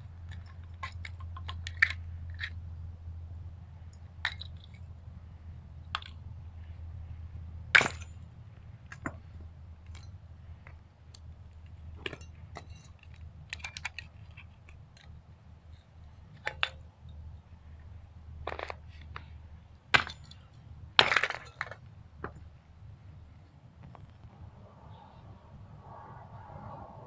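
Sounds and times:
steady low hum: 0.0 - 27.0
metal pieces clinking on concrete: 12.0 - 15.1, 20.0 - 21.8.

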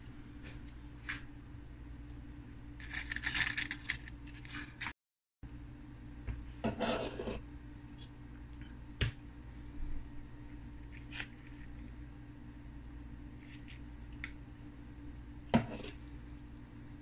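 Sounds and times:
steady low hum: 0.0 - 17.0
batter scraping: 6.6 - 7.4.

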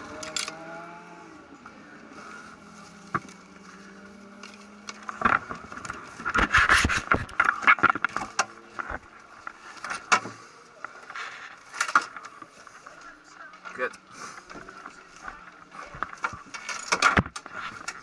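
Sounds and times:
hand handling camera: 4.3 - 10.3.

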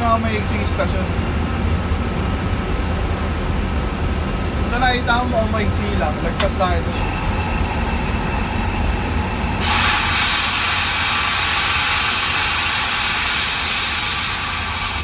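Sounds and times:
locomotive rumbling: 0.0 - 15.0
air brakes hissing: 6.9 - 15.0.

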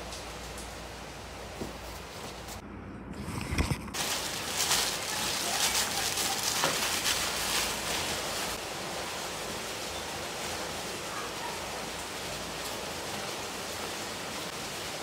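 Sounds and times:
heavy rain hissing: 0.0 - 2.6, 4.0 - 15.0
cloth rustling: 3.6 - 8.6
plastic bag crinkling: 3.6 - 8.6.

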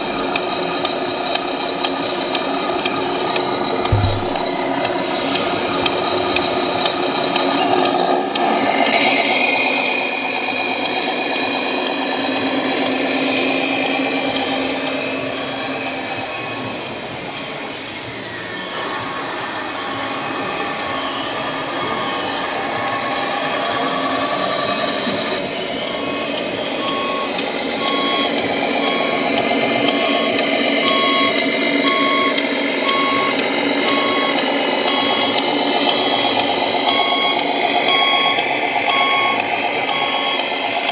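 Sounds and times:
reversing beeper beeping: 0.0 - 7.6, 18.4 - 40.9
simulated diesel engine tones: 0.0 - 40.9.

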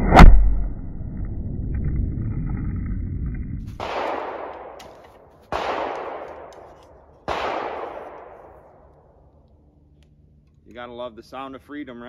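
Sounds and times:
gunshots with long echo: 3.7 - 9.3.

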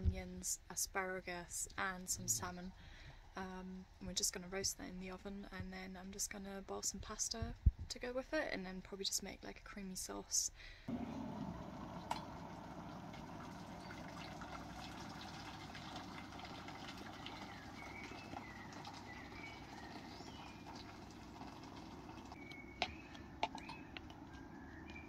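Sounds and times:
small birds chirping: 13.5 - 14.5, 16.7 - 25.0.

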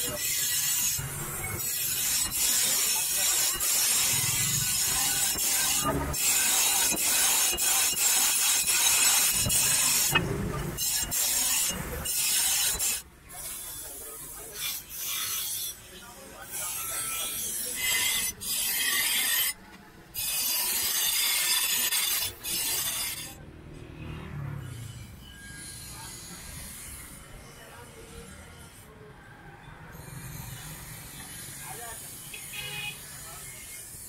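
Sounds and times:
grinder wheel grinding steel: 0.0 - 19.6, 20.2 - 23.4, 24.0 - 28.9.

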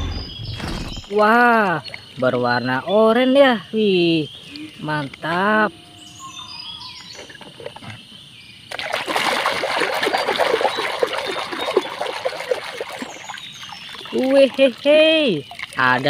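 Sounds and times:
hand sloshing in soapy water: 8.7 - 14.8.

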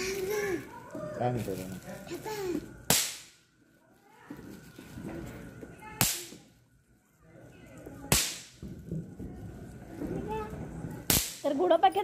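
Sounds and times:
bang snaps cracking on tiles: 2.9 - 3.4, 8.1 - 8.8, 11.0 - 11.5.

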